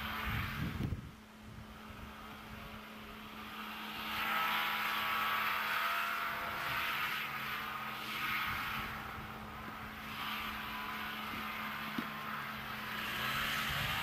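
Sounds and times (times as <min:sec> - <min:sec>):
wind gusts on microphone: 0:00.0 - 0:03.2, 0:12.6 - 0:14.0.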